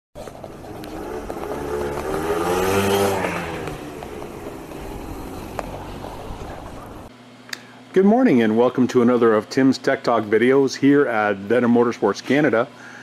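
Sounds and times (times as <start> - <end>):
vehicle engine revving: 0.2 - 7.1.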